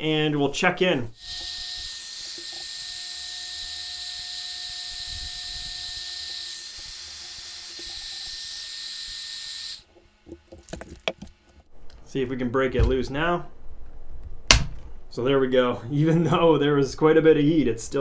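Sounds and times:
heat gun blowing with whine: 1.2 - 9.9.

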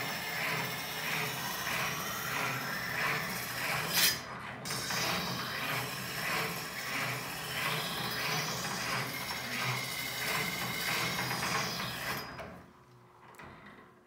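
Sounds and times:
blade scraping on sharpener: 2.6 - 10.1.

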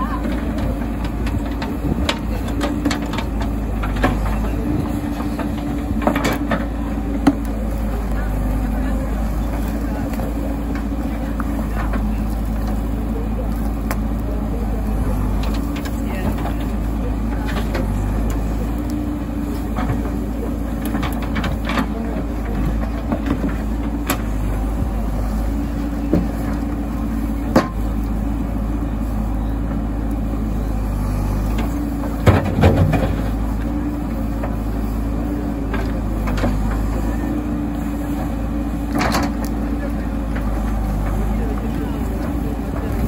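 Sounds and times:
diesel engine running: 0.0 - 43.0.

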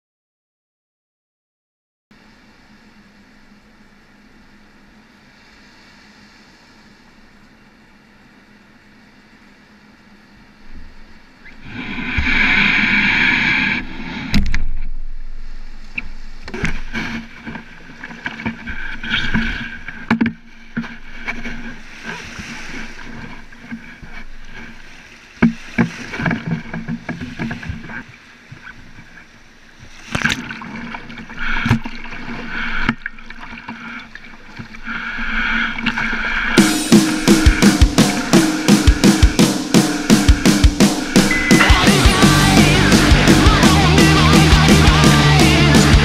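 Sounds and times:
waves splashing on deck: 2.2 - 9.5, 10.4 - 46.0
water slapping against kayak hull: 10.7 - 45.0.

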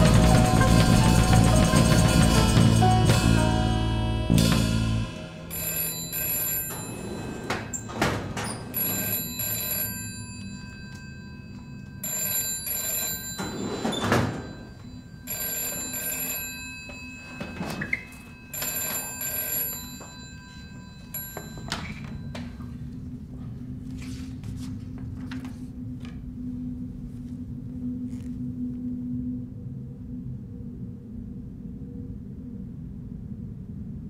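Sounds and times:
telephone bell ringing: 5.1 - 22.7.

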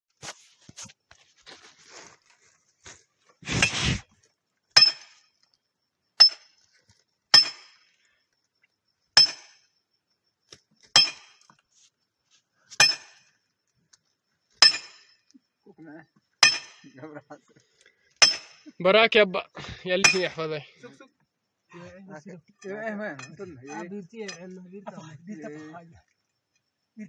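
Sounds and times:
rough scraping noise: 3.4 - 4.1
steel tool striking rock: 3.5 - 4.0, 4.8 - 5.3, 6.2 - 6.6, 7.3 - 7.9, 9.2 - 9.7, 10.9 - 11.5, 12.7 - 13.3, 14.6 - 15.2, 16.4 - 17.0, 18.2 - 18.6, 20.0 - 20.4.

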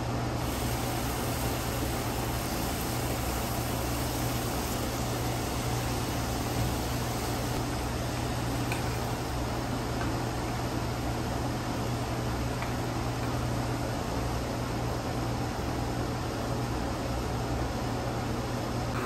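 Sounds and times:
bacon sizzling in a frying pan: 0.4 - 7.6.

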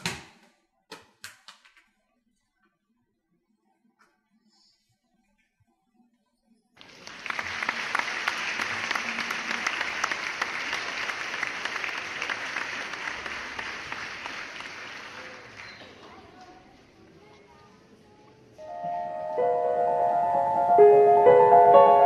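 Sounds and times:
audience applauding: 6.8 - 16.4.

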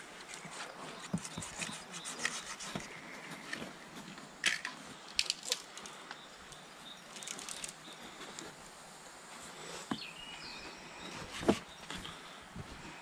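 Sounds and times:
dry branches snapping: 4.4 - 5.9.

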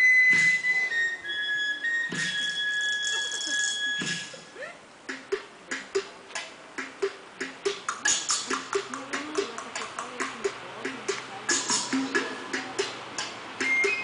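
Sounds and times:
flute high notes: 0.0 - 4.6
percussion beat with sharp knocks: 2.1 - 4.4, 5.0 - 14.0
low wooden percussion tones: 2.1 - 14.0.

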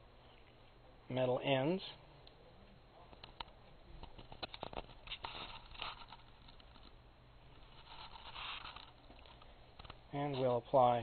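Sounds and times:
soft scraping and rustling: 2.6 - 11.0.

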